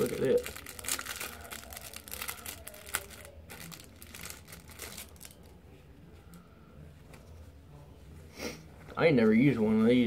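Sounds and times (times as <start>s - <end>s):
plastic packaging crinkling: 0.0s - 5.6s.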